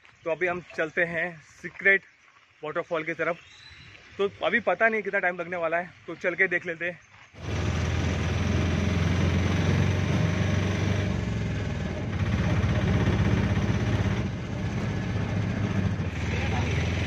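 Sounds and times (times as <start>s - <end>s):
road and wind noise: 7.2s - 17.0s
auto rickshaw engine running: 7.4s - 17.0s.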